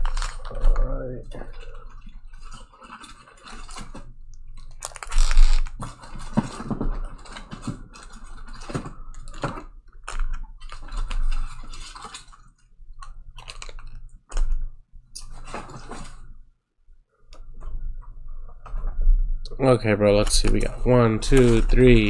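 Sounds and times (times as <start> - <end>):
plastic wrapper crinkling: 0.0 - 16.3, 20.2 - 22.0.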